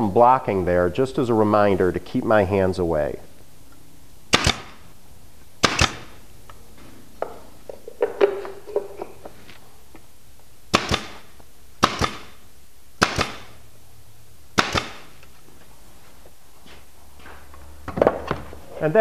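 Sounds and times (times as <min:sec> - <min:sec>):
pneumatic nailer firing nails: 0:04.3 - 0:04.9, 0:05.6 - 0:06.2, 0:10.7 - 0:12.4, 0:13.0 - 0:13.6, 0:14.5 - 0:15.2.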